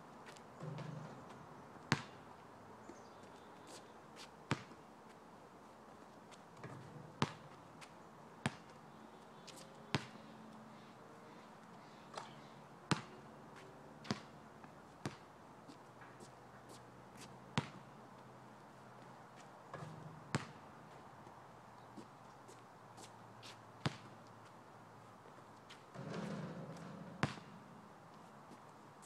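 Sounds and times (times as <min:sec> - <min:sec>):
basketball bouncing on asphalt: 0:00.2 - 0:04.8, 0:06.6 - 0:08.8, 0:09.4 - 0:10.2, 0:12.1 - 0:14.4, 0:15.0 - 0:15.3, 0:16.7 - 0:18.3, 0:19.4 - 0:21.4, 0:23.0 - 0:24.3, 0:25.7 - 0:28.6.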